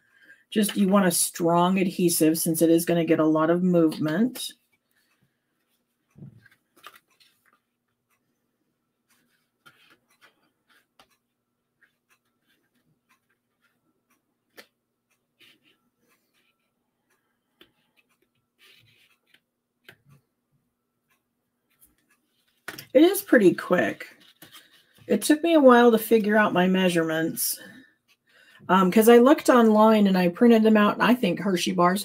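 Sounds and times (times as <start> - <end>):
cardstock taps and rustles: 22.6 - 22.9.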